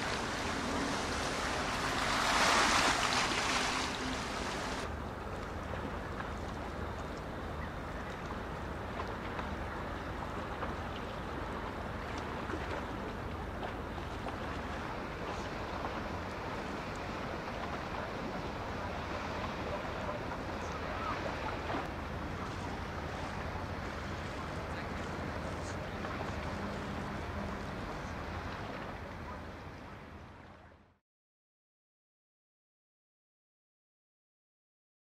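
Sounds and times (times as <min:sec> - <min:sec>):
low engine drone: 0:00.0 - 0:29.8
water noise: 0:00.0 - 0:31.0
wind: 0:00.0 - 0:31.0.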